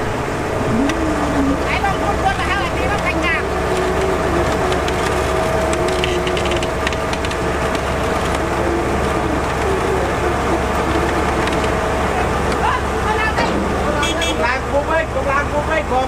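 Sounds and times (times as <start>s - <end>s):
heavy diesel machinery running: 0.0s - 16.0s
steady mechanical whine: 0.0s - 16.0s
scattered clicks: 2.8s - 9.9s, 10.7s - 11.8s.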